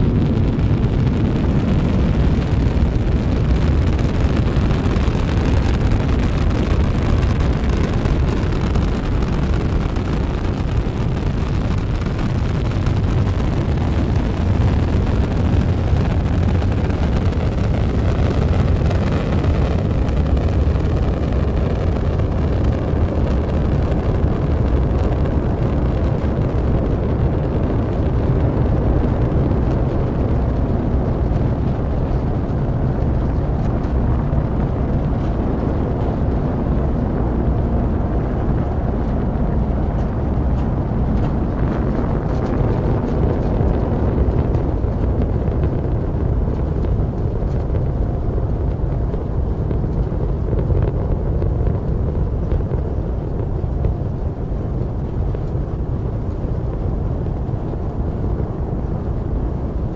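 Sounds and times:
rocket engines rumbling: 0.0 - 59.9.

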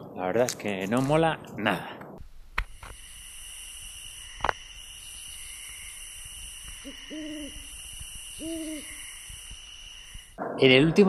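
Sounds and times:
steady hiss: 2.2 - 10.4
low hooting calls: 2.4 - 10.4.

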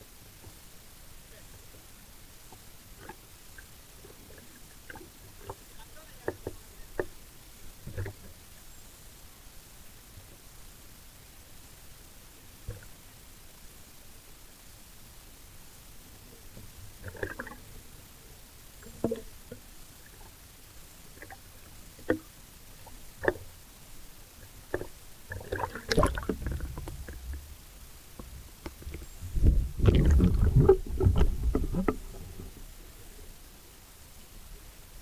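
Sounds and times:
water sloshing and gurgling: 1.7 - 8.4, 12.6 - 13.0, 16.3 - 23.6, 24.3 - 33.3
water splashing: 2.4 - 7.2, 17.0 - 17.9, 18.8 - 20.4, 21.0 - 23.6, 24.4 - 33.2.

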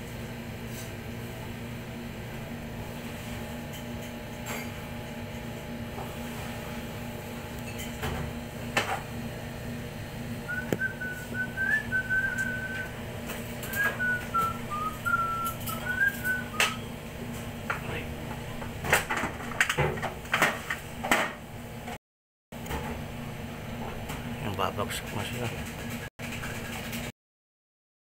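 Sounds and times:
low machine hum: 0.0 - 22.0
person whistling a tune: 10.5 - 13.0, 13.6 - 16.9.

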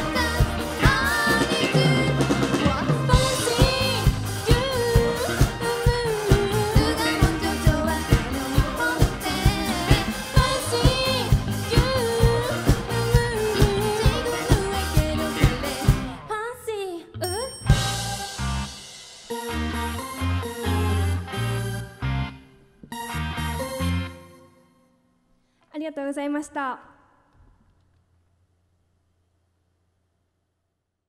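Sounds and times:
steady drumbeat: 0.0 - 16.2
lead vocal singing: 0.0 - 16.3
live band playing pop song: 0.0 - 16.4, 17.2 - 22.3.

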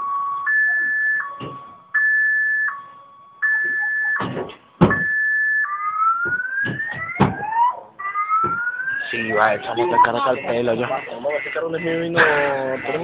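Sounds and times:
car alarm: 0.0 - 13.0
sharp knocks: 3.6 - 5.2, 6.2 - 7.6, 8.4 - 8.7.

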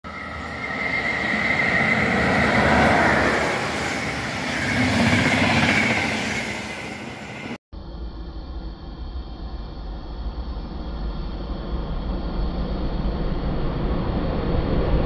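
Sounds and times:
high whine: 0.0 - 15.0
train wheels rumbling on rails: 0.1 - 7.6.

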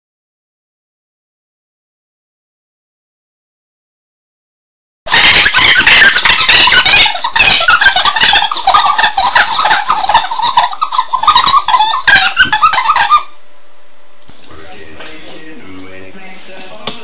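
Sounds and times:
kids screaming and shrieking: 5.1 - 13.3
kids laughing: 5.1 - 13.4.

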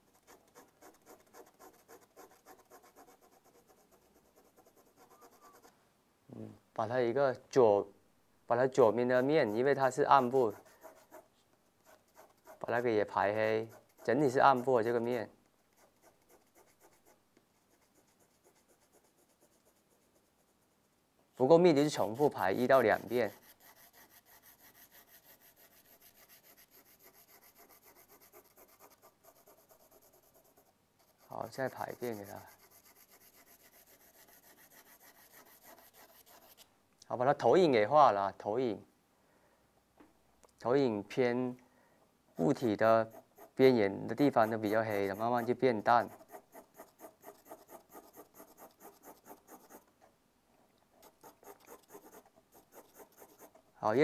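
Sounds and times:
pencil scratching on paper: 0.0 - 5.7, 8.9 - 20.6, 21.8 - 36.6, 42.4 - 49.9, 51.0 - 53.6.

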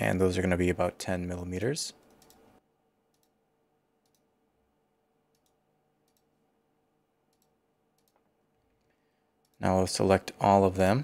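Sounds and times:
computer mouse clicks: 1.9 - 2.5, 3.1 - 3.4, 4.0 - 4.3, 5.3 - 6.3, 7.3 - 9.7.

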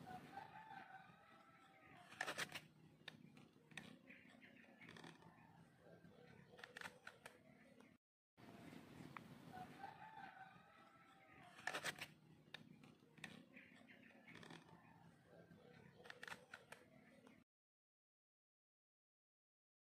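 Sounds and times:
distant rooster crowing: 0.0 - 2.0, 9.5 - 11.6.

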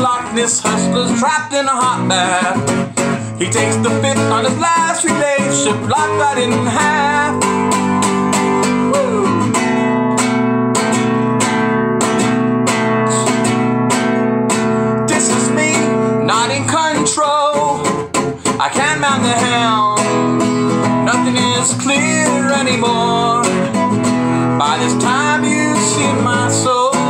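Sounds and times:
wordless singing: 0.0 - 2.6, 3.4 - 7.8, 15.1 - 23.7, 24.4 - 27.0
acoustic guitar strumming: 0.0 - 27.0.

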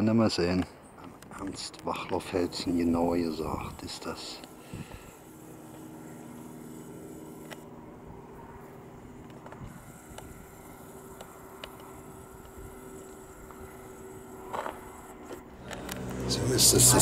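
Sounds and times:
cable car machinery hum: 1.0 - 17.0.

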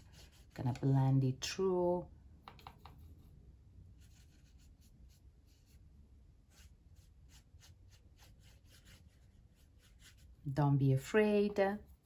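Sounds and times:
brush swishing on paper: 0.0 - 0.6, 3.0 - 10.5, 11.5 - 12.0.

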